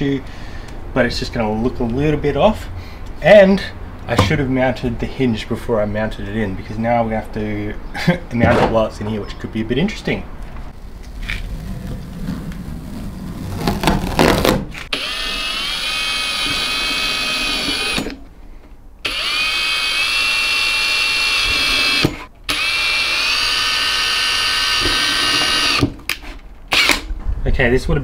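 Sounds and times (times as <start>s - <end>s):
rustling and scraping: 10.4s - 14.9s
cordless drill whining: 14.9s - 18.2s, 19.0s - 25.9s.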